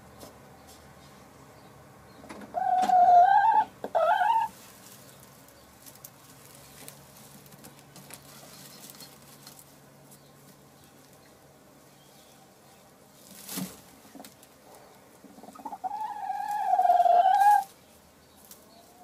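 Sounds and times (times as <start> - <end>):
hen calling: 2.5 - 4.6, 15.3 - 17.7
rustling in nest straw: 4.1 - 19.0.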